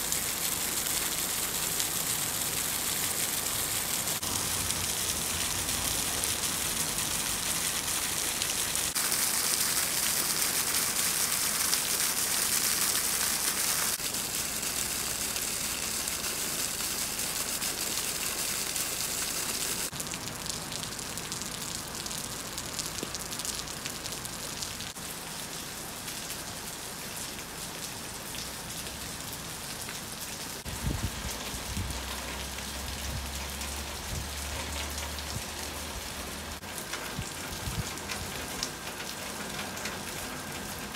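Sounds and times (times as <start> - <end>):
rain splashing on pavement: 0.0 - 40.9.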